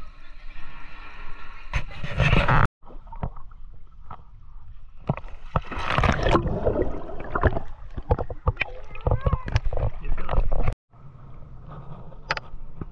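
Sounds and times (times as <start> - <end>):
pool water sloshing and splashing: 5.2 - 10.8.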